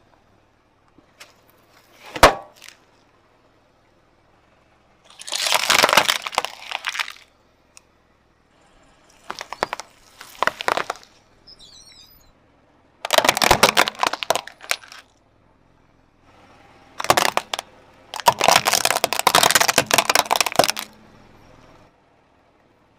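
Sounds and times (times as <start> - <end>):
tyre crushing small objects: 1.1 - 2.9, 5.1 - 7.3, 9.2 - 11.2, 13.0 - 15.1, 17.0 - 21.0.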